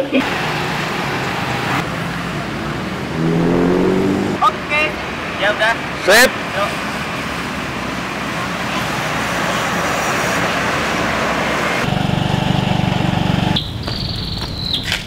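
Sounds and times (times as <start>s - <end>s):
road traffic: 0.0s - 15.0s
high steady tone: 3.1s - 4.4s.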